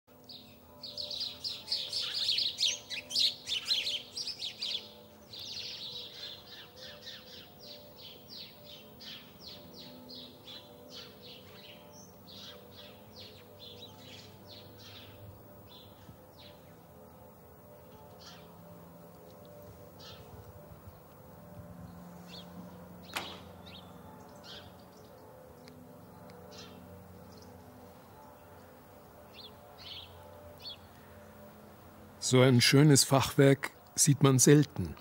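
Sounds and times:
small birds chirping: 0:00.2 - 0:27.6.

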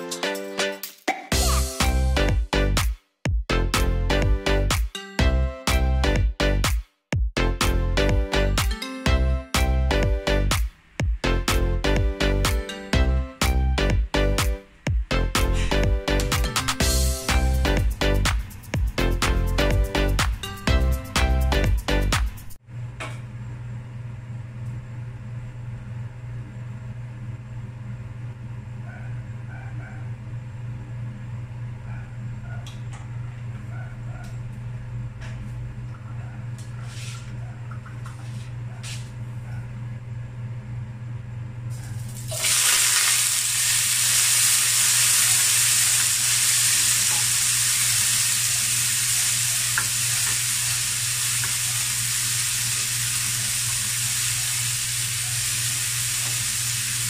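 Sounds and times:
food sizzling in hot oil: 0:42.1 - 0:57.0.

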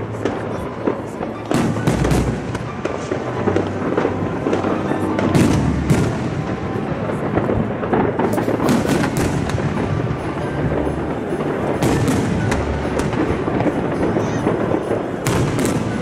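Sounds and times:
fireworks bursting: 0:00.0 - 0:16.0
music playing: 0:00.0 - 0:16.0.

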